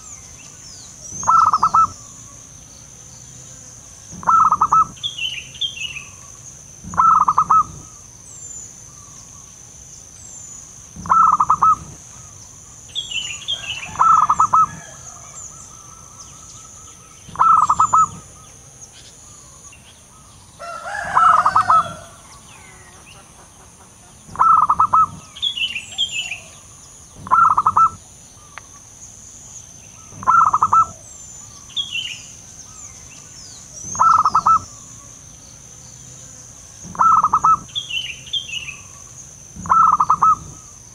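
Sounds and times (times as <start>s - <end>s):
insect whine: 0.0s - 40.9s
small birds chirping: 0.0s - 40.9s
dove cooing: 1.1s - 2.1s, 4.1s - 5.0s, 6.8s - 8.0s, 11.0s - 12.3s, 13.5s - 16.3s, 17.3s - 18.4s, 20.6s - 22.8s, 24.3s - 28.5s, 30.1s - 31.1s, 33.8s - 34.8s, 36.8s - 37.8s, 39.6s - 40.7s.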